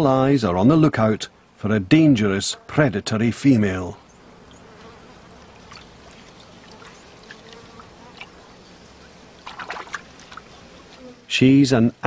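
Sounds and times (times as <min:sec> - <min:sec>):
insects buzzing: 0:00.0 - 0:12.0
small ticks: 0:04.5 - 0:08.4, 0:09.4 - 0:11.1
water trickling: 0:05.4 - 0:10.7.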